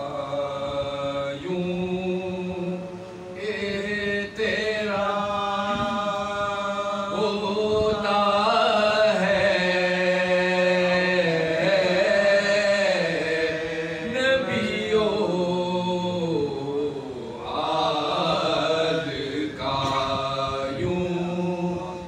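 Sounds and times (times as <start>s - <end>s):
male voices holding low drone: 0.0s - 22.0s.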